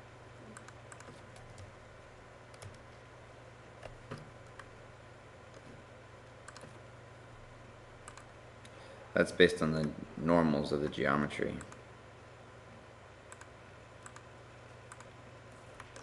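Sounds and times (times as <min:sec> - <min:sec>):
computer mouse clicks: 0:00.5 - 0:01.7, 0:02.5 - 0:03.0, 0:06.4 - 0:06.8, 0:08.0 - 0:08.8, 0:13.3 - 0:16.0.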